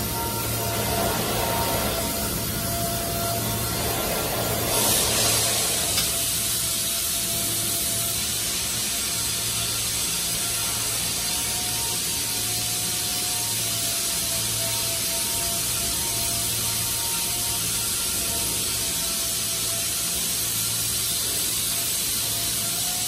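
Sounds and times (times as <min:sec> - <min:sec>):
even hiss: 0:00.0 - 0:11.4
machinery hum: 0:00.0 - 0:23.0.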